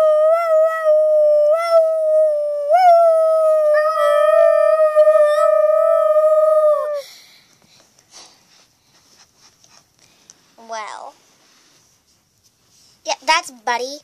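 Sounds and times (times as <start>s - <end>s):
child howling like a dog: 0.0s - 7.1s.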